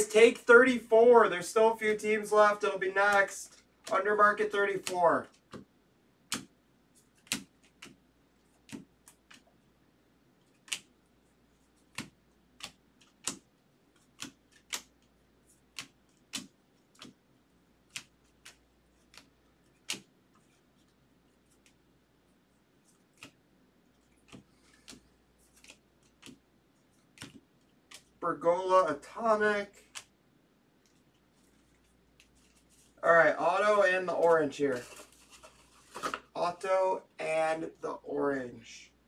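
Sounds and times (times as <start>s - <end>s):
trading cards clicking: 3.0s - 5.6s, 6.3s - 8.0s, 10.5s - 10.9s, 14.0s - 17.2s, 24.0s - 26.4s, 27.0s - 28.2s.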